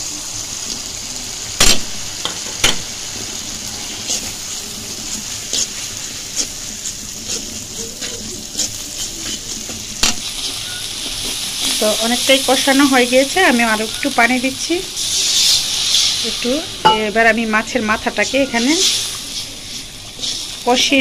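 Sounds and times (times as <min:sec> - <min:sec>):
paste sizzling in hot oil: 0:00.0 - 0:21.0
metal spatula scraping pan: 0:05.4 - 0:12.0
spatula clanking on pan: 0:16.8 - 0:17.2.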